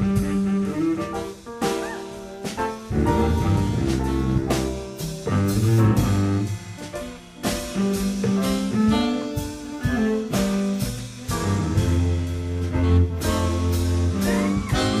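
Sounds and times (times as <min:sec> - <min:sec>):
drum kit: 0:00.0 - 0:15.0
jazz group playing slow blues: 0:00.0 - 0:15.0
guitar: 0:13.0 - 0:15.0.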